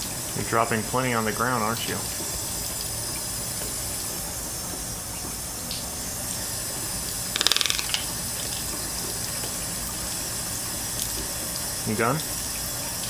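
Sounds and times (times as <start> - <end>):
toucan rattling clicks: 7.4 - 8.1.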